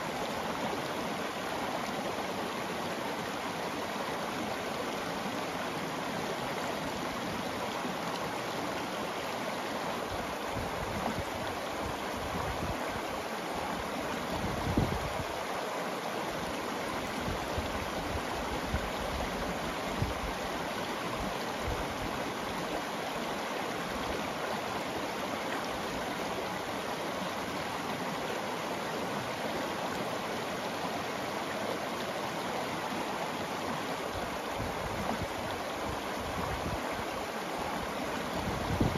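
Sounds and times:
river rushing over rocks: 0:00.0 - 0:38.9.

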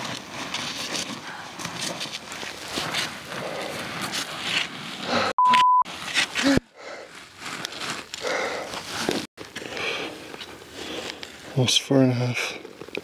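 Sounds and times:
footsteps on loose ground: 0:00.0 - 0:05.0
heavy breathing: 0:03.2 - 0:04.3, 0:05.0 - 0:05.4, 0:06.4 - 0:11.5
electronic beep: 0:05.4 - 0:05.8.

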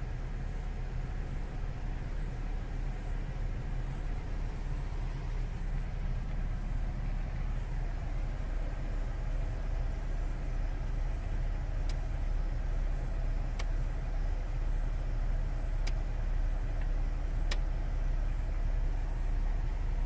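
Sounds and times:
car engine idling: 0:00.0 - 0:20.0
sharp clicks: 0:11.8 - 0:12.2, 0:13.4 - 0:13.8, 0:15.8 - 0:16.1, 0:16.8 - 0:17.8.

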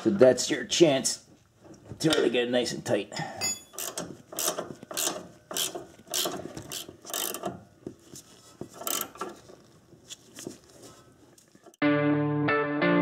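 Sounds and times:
ratcheting wrench clicking: 0:03.7 - 0:07.6, 0:08.8 - 0:09.3.

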